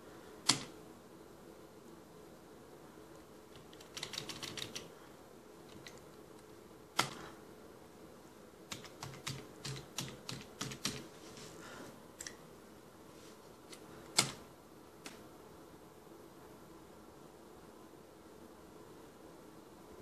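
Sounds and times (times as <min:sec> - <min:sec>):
faint steady hum: 0:00.0 - 0:20.0
keyboard typing: 0:00.5 - 0:00.8, 0:03.5 - 0:04.9, 0:08.7 - 0:11.1.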